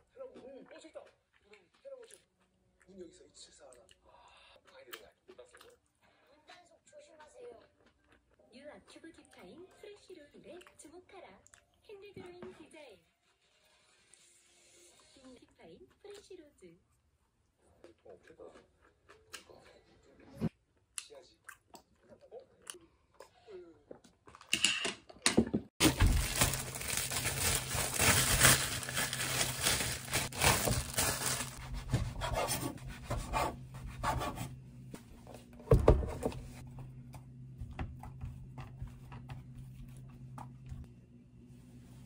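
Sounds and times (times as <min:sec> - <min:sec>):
plastic bag crinkling: 0:25.8 - 0:31.6.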